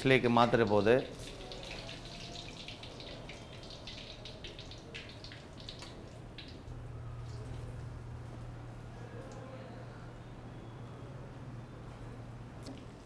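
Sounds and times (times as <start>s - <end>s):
hot oil crackling in a wok: 0.4s - 6.9s.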